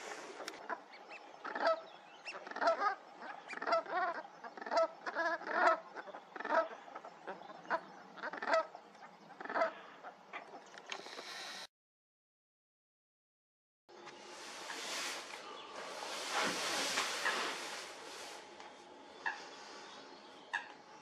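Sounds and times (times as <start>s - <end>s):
geese honking: 0.0s - 10.6s, 14.6s - 18.4s, 19.1s - 20.8s.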